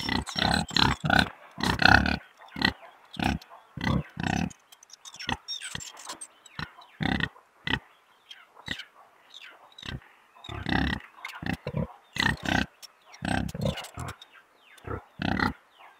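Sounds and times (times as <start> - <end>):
pigs grunting: 0.0 - 4.6, 6.6 - 7.8, 9.8 - 14.2, 14.8 - 15.6.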